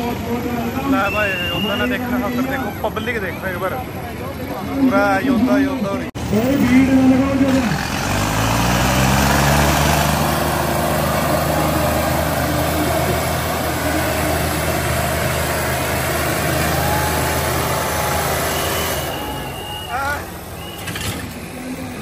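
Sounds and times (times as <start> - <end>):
tractor engines revving: 0.0 - 22.0.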